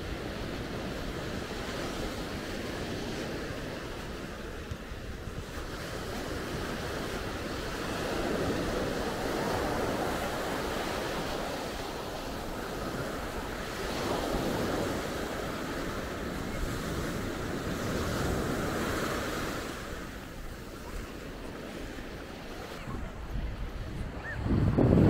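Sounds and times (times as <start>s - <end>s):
surf washing on sandy beach: 0.0s - 25.0s
wind rumbling on microphone: 0.0s - 25.0s.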